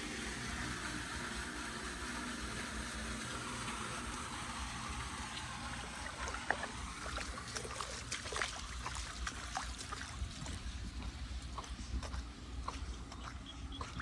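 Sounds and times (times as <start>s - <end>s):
low steady rumble: 0.0s - 14.0s
water trickling: 1.6s - 14.0s
small splashes and clicks: 6.2s - 14.0s.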